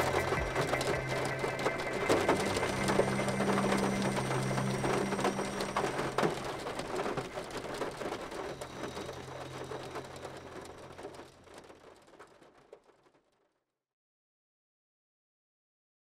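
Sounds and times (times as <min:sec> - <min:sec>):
low steady hum: 0:00.0 - 0:11.5
rain falling: 0:00.0 - 0:13.4.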